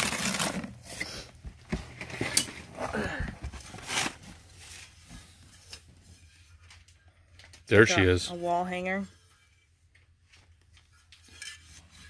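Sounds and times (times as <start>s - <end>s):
paper rustling and crinkling: 0.0s - 0.9s, 3.5s - 5.4s.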